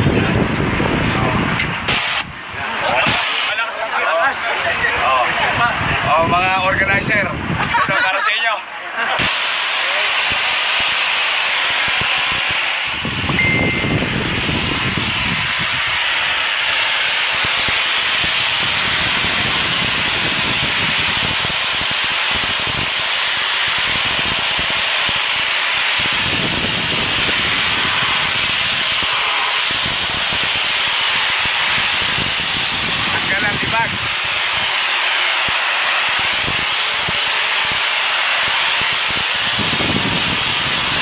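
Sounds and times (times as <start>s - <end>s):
pressure washer jet hissing: 1.7s - 3.7s, 9.2s - 41.0s.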